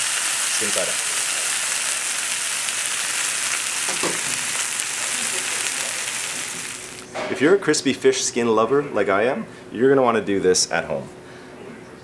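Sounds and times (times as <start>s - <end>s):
oil sizzling around fish in pan: 0.0s - 7.1s.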